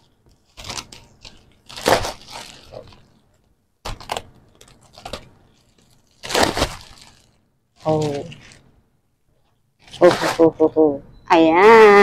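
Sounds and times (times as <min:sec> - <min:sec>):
plastic packaging crinkling and tearing: 0:00.0 - 0:08.7.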